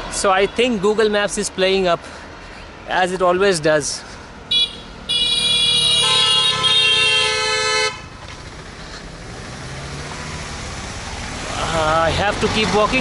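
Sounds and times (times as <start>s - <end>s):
vehicle engine: 0.0s - 13.0s
vehicle horn blaring: 4.5s - 8.1s.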